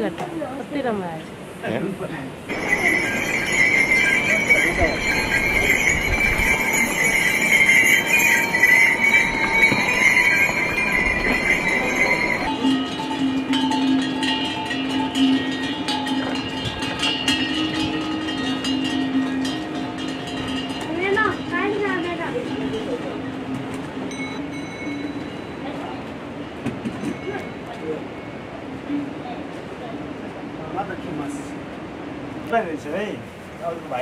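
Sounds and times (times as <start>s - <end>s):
hooves clattering on dirt: 2.5s - 22.2s
pack animal bells ringing: 2.5s - 28.7s.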